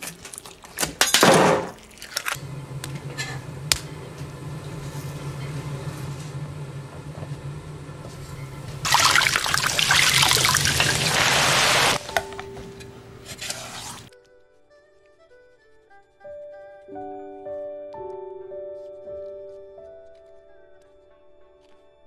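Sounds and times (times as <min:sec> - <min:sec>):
low kitchen hum: 0:00.1 - 0:14.1
oil sizzling and crackling: 0:01.7 - 0:14.1.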